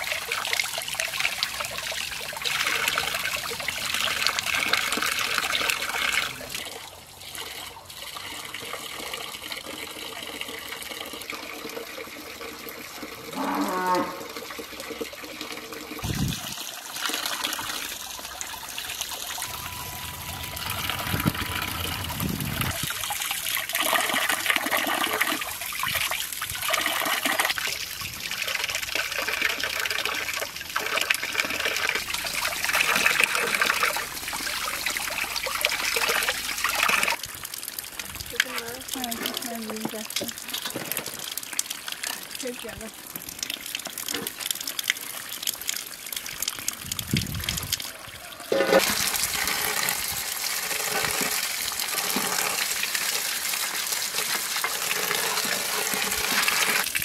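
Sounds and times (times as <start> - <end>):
cow mooing: 13.3 - 14.3, 19.5 - 22.7.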